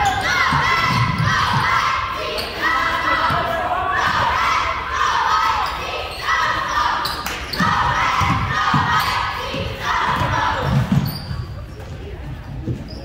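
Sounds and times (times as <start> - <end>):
voices calling out: 0.0 - 11.8
basketball bouncing on wooden floor: 7.6 - 9.1.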